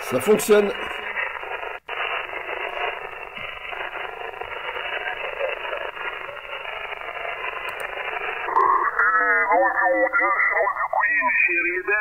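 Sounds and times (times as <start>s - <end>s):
radio static hiss: 0.0s - 12.0s
faint garbled radio voice: 4.4s - 6.7s, 8.5s - 12.0s.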